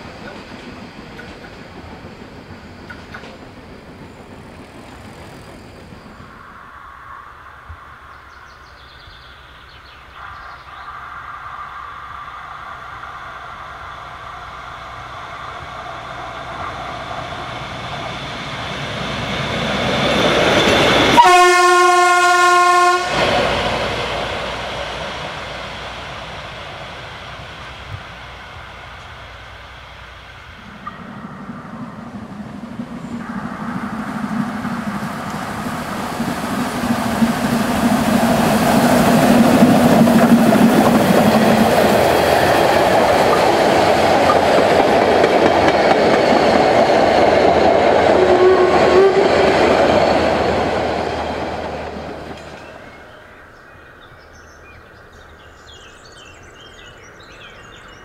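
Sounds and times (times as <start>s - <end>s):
diesel railcar running: 0.0s - 58.0s
train horn blast: 21.0s - 23.6s, 48.1s - 49.6s.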